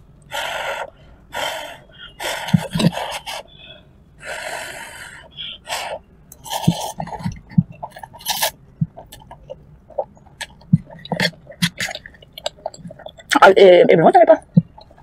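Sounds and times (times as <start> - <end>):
wet chewing clicks: 6.3 - 13.5.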